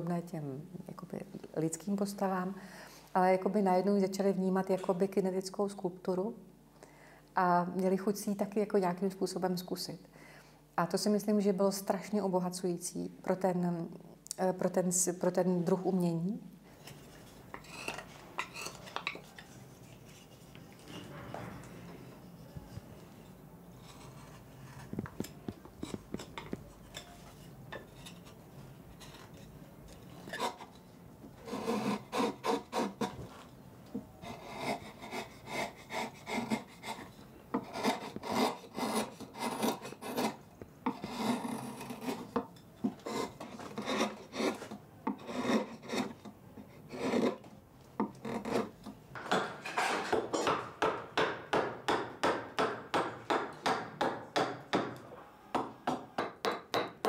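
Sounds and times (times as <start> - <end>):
wood being rasped by hand: 31.4 - 33.1, 34.2 - 42.4, 43.0 - 46.2, 46.9 - 47.4.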